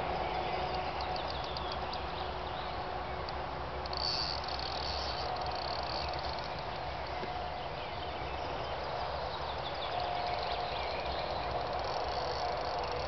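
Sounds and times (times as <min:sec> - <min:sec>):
high rapidly clicking buzz: 0:03.2 - 0:06.8, 0:11.4 - 0:13.0.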